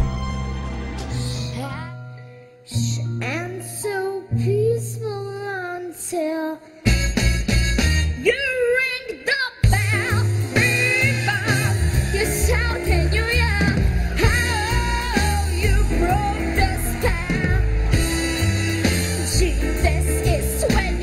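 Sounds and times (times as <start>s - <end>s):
girl singing pop song: 1.2s - 6.9s, 8.2s - 17.8s, 19.1s - 21.0s
upbeat backing track: 6.9s - 8.4s, 9.6s - 21.0s.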